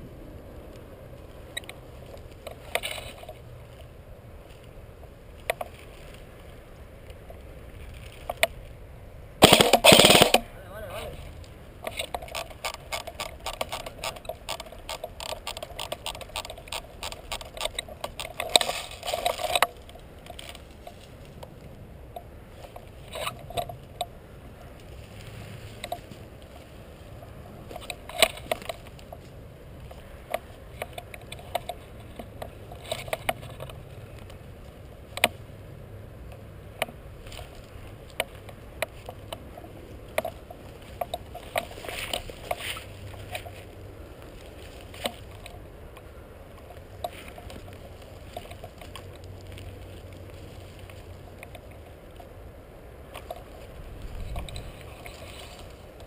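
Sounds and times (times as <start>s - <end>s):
rapid airsoft gunfire: 9.4s - 10.5s.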